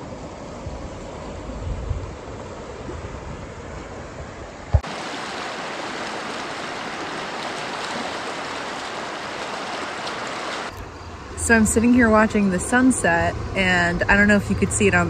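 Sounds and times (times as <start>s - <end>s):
wind rumble on microphone: 0.0s - 5.9s
water rushing over rocks: 4.7s - 10.7s.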